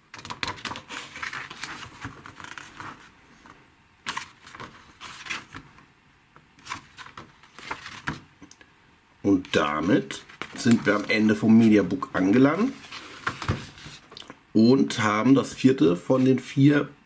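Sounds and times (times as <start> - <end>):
paper pages turning: 0.1 - 5.8, 6.6 - 8.3, 9.4 - 14.2.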